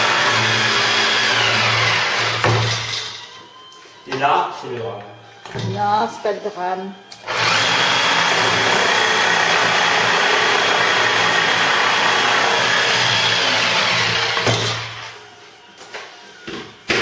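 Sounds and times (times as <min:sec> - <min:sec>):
jigsaw cutting worktop: 0:00.0 - 0:03.1, 0:07.2 - 0:15.2.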